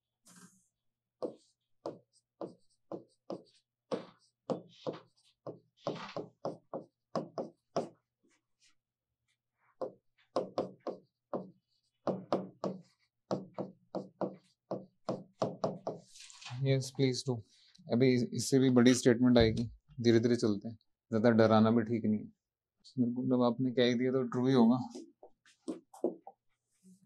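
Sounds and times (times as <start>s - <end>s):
chalk tapping on a blackboard: 1.2s - 8.0s, 9.8s - 16.1s, 25.0s - 26.4s.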